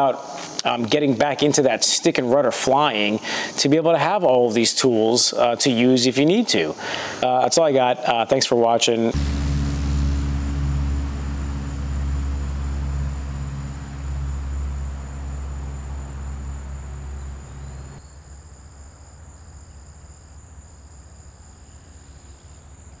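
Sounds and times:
crickets chirping: 0.0s - 23.0s
propeller plane engine drone: 9.1s - 18.0s.

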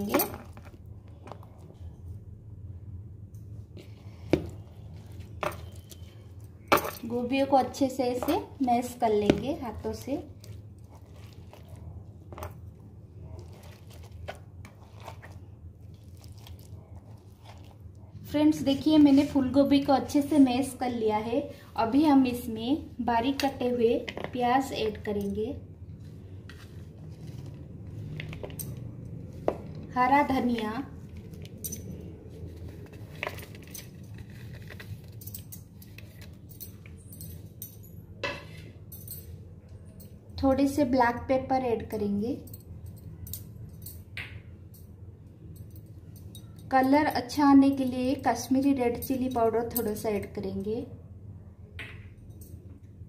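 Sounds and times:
kitchen items clicking and clinking: 0.0s - 1.6s, 5.1s - 12.6s, 27.0s - 40.2s
cauliflower squishing: 10.0s - 12.4s, 13.3s - 18.1s.

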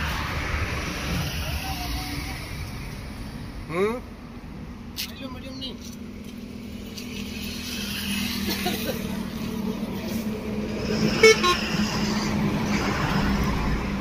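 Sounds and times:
horn toot: 11.1s - 11.8s.

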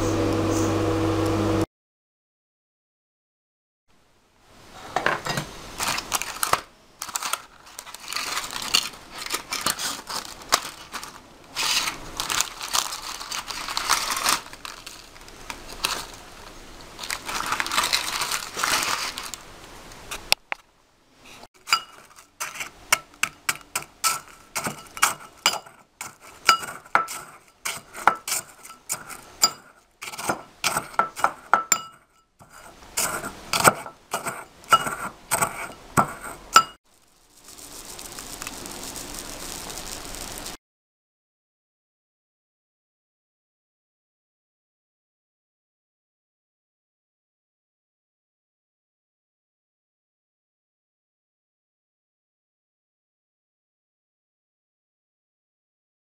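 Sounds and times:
meringue crunching: 5.8s - 19.4s, 32.4s - 40.6s
paper rustling: 5.8s - 19.5s, 36.9s - 40.6s
pestle clinking in ceramic bowl: 21.6s - 36.8s.

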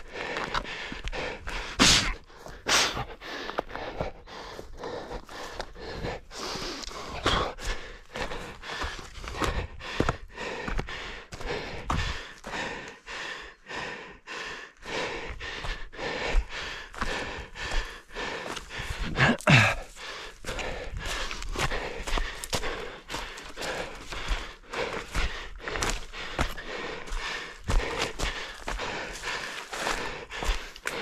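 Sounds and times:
heavy breathing: 0.0s - 31.0s
running footsteps: 0.0s - 31.0s.

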